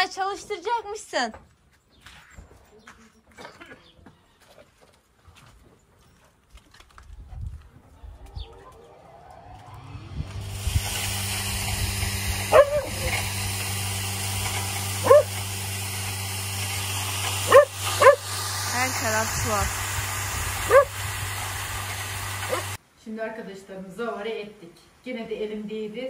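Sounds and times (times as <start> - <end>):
electric grain crusher running: 8.0 - 22.8
dog barking: 12.5 - 13.2, 15.0 - 15.3, 17.5 - 18.2, 20.7 - 21.0, 22.5 - 22.7.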